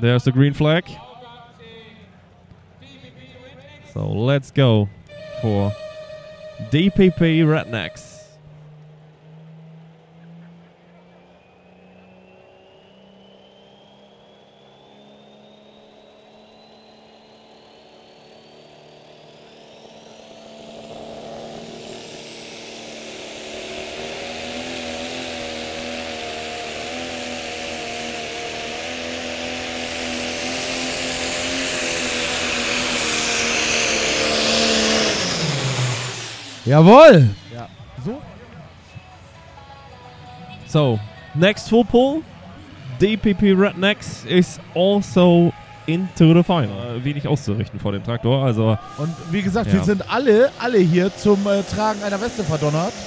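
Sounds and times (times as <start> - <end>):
diesel engine under full load: 0.0 - 53.0
high whistle rising in pitch: 5.0 - 8.4, 11.1 - 26.8, 30.4 - 38.4.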